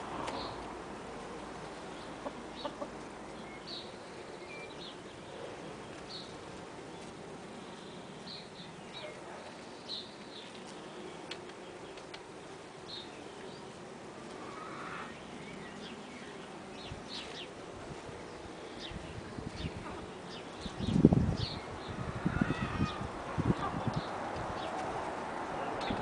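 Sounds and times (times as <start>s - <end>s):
hens clucking softly: 2.1s - 3.1s.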